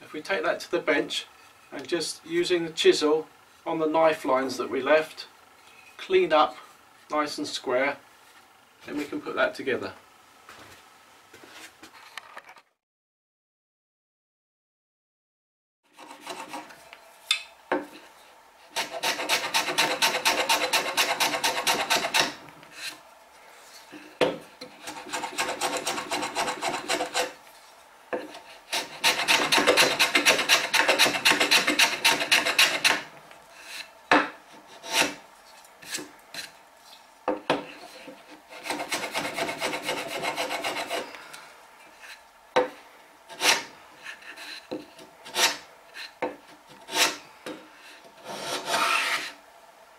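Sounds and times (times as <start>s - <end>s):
block plane shaving wood: 15.9s - 16.8s, 18.6s - 23.0s, 24.6s - 27.4s, 28.1s - 35.2s, 37.6s - 41.1s, 43.3s - 46.1s, 46.7s - 47.2s, 48.1s - 49.4s.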